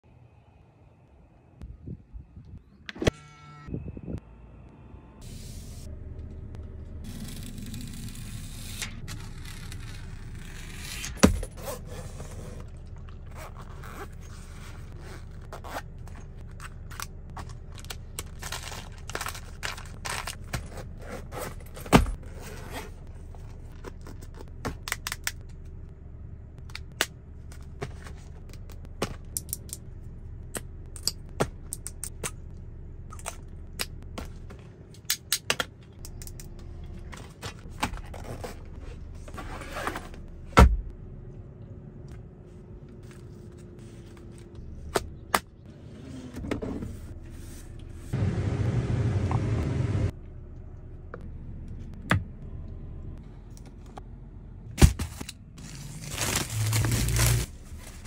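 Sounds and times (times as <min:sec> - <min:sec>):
items and bottles handled: 0:11.2 - 0:25.2, 0:54.8 - 0:58.0
steady low hum: 0:35.8 - 0:58.0.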